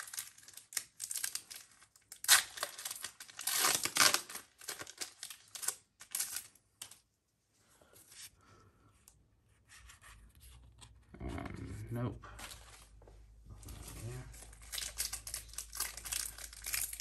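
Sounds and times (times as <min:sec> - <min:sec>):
foil wrapper crinkling and tearing: 0:00.0 - 0:07.0, 0:13.9 - 0:17.0.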